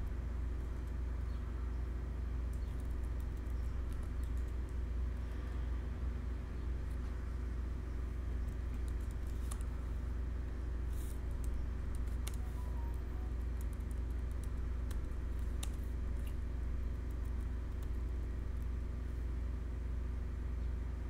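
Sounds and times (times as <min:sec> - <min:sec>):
steady low hum: 0:00.0 - 0:21.0
keyboard keystroke clicks: 0:11.4 - 0:16.4.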